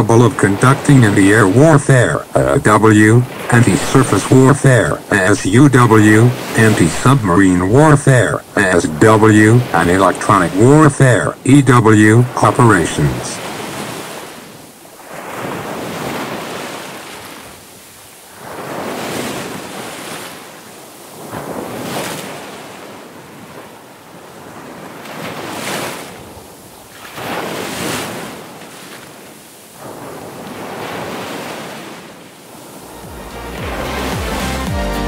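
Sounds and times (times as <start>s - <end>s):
sea waves washing: 0.0s - 34.7s
electronic music: 32.9s - 35.0s.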